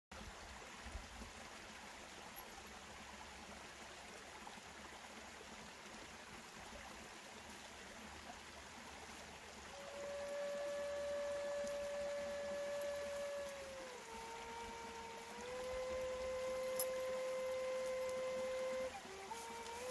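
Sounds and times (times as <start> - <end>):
flute long held note: 9.6 - 19.9.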